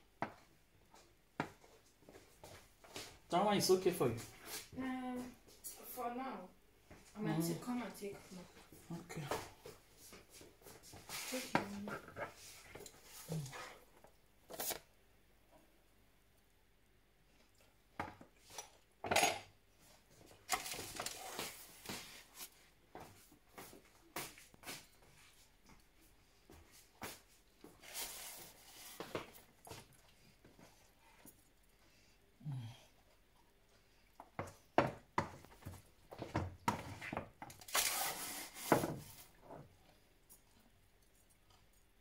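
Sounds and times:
spoon scraping rustle: 0:20.5 - 0:22.6, 0:27.6 - 0:29.6, 0:37.7 - 0:39.4.

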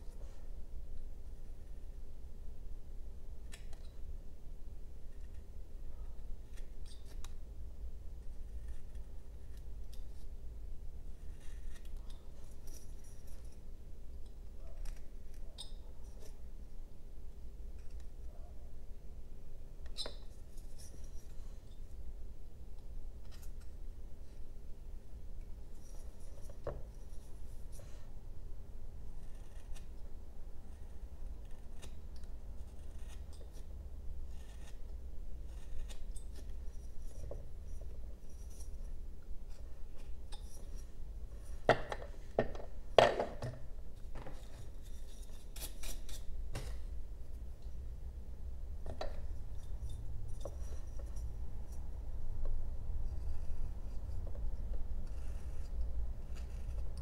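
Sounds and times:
knife carving wood: 0:03.4 - 0:04.1, 0:05.0 - 0:10.4, 0:11.0 - 0:16.4, 0:19.8 - 0:21.8, 0:25.4 - 0:28.2, 0:29.0 - 0:46.9, 0:48.8 - 0:57.0.

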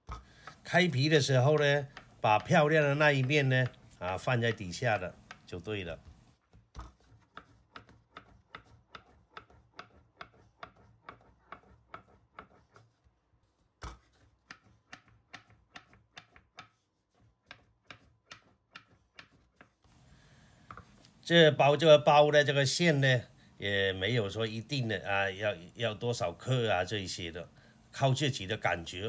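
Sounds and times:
rolling pin clicking on board: 0:01.8 - 0:03.8, 0:06.5 - 0:12.6, 0:13.8 - 0:16.8, 0:17.4 - 0:19.8.

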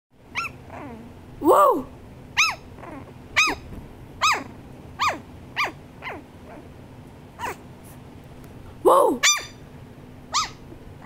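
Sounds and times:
small dog barking: 0:02.4 - 0:02.7, 0:03.4 - 0:03.6, 0:04.2 - 0:06.7, 0:07.4 - 0:07.6, 0:08.9 - 0:09.6, 0:10.3 - 0:10.6.

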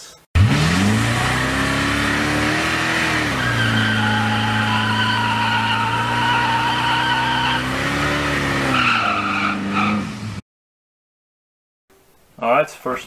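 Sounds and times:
tyres squealing: 0:03.0 - 0:08.0.

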